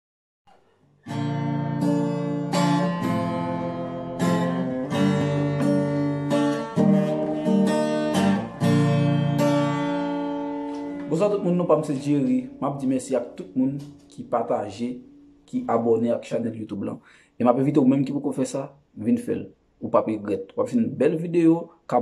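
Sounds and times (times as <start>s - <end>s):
acoustic guitar strumming: 0.5s - 16.2s.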